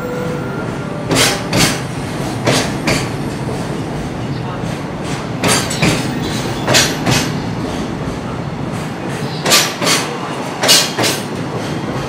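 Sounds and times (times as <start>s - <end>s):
wheels clacking over rail joint: 1.1s - 3.6s, 4.7s - 7.9s, 8.7s - 12.0s.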